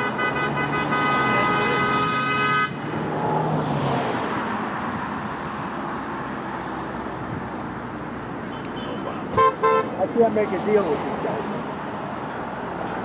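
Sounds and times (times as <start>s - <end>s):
car horn honking: 0.0s - 2.8s, 8.5s - 10.0s
passing road traffic: 0.0s - 13.0s.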